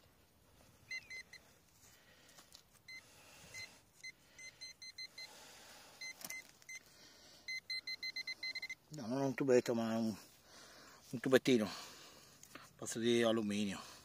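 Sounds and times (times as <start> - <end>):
metal detector beeps: 0.8 - 1.5, 2.8 - 5.4, 6.0 - 6.9, 7.5 - 8.8.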